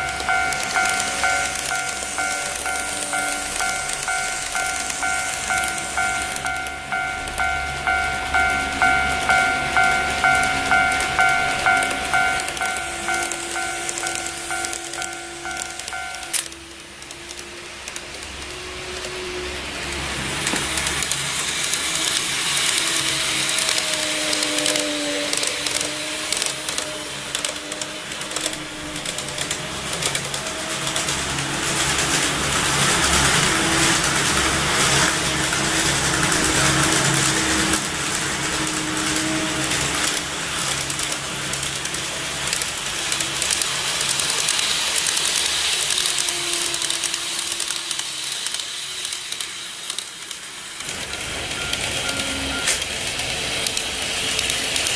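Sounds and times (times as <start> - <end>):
model train rolling on track: 0.0 - 54.9
small electric motor whining: 42.5 - 50.4.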